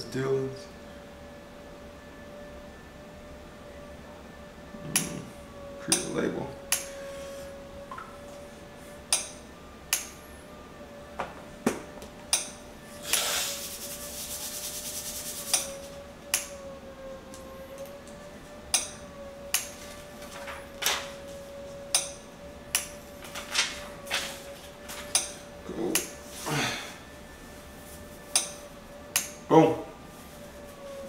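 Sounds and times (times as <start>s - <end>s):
hands rubbing and rasping: 13.1s - 15.8s.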